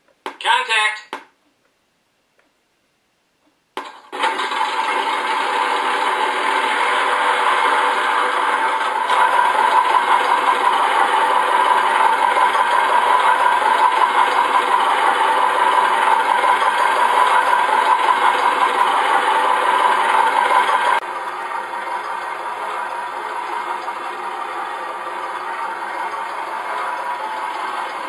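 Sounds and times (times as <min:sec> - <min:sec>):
diesel engine idling through small speaker: 0:06.8 - 0:28.0.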